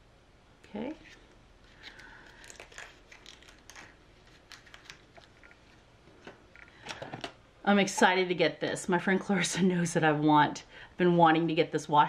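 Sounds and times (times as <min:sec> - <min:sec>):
packaging clicks and rustles: 0:01.7 - 0:07.4.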